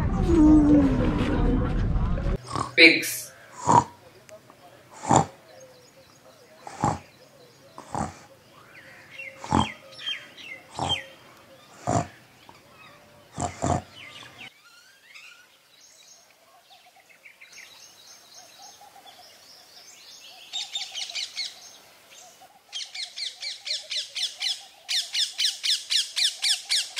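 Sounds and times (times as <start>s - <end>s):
pig grunts: 2.4s - 4.0s, 4.9s - 5.4s, 6.6s - 7.2s, 7.8s - 8.3s, 9.3s - 9.8s, 10.6s - 12.2s, 13.3s - 14.0s
babblers chattering: 2.4s - 4.1s, 4.8s - 5.8s, 6.4s - 14.5s.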